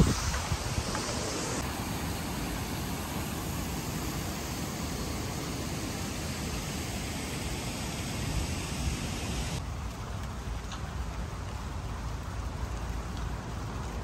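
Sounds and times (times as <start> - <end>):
wind blowing over microphone: 0.0 - 9.6.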